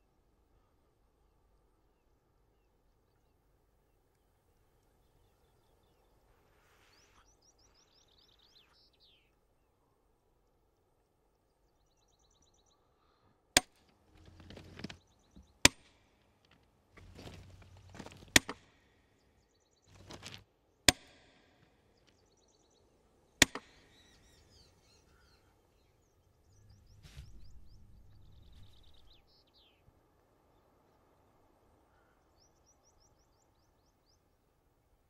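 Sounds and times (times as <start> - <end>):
rough rustling noise: 6.2 - 7.3, 13.8 - 18.4, 19.9 - 20.5, 26.7 - 29.1.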